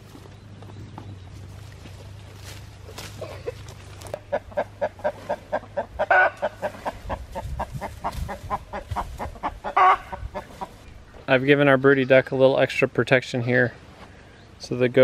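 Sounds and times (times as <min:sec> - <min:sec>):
chickens clucking: 0:00.0 - 0:11.0.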